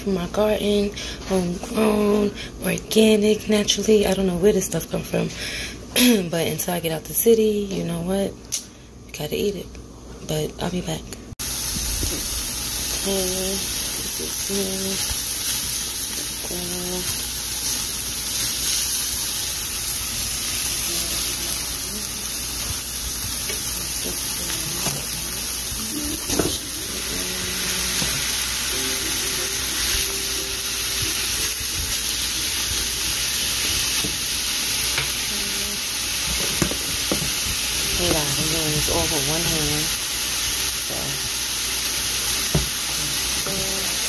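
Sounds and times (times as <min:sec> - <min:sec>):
vegetables sizzling in a frying pan: 0:11.4 - 0:44.0.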